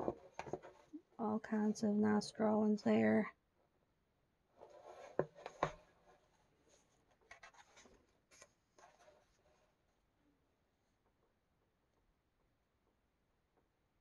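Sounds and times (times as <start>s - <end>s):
paper pages rustling: 4.6s - 9.7s.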